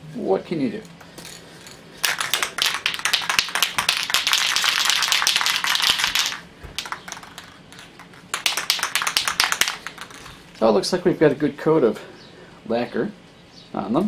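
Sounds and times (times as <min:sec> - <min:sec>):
aerosol can mixing ball rattling: 0:02.0 - 0:10.5.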